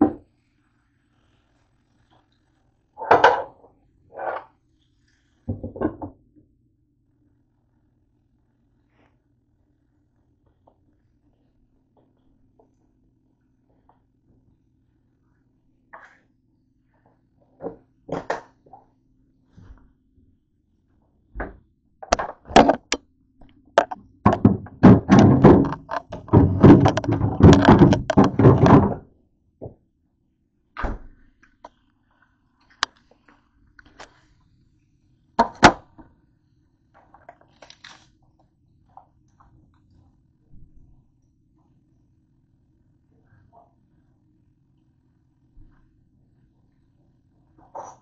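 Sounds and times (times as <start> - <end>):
camera handling knocks and thumps: 23.8 - 28.9.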